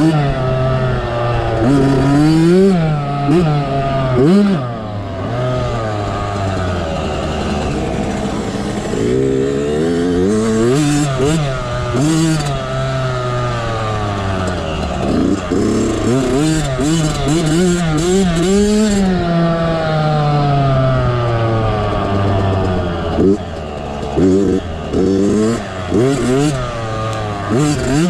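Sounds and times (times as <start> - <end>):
two-stroke engine revving: 0.0 - 28.0.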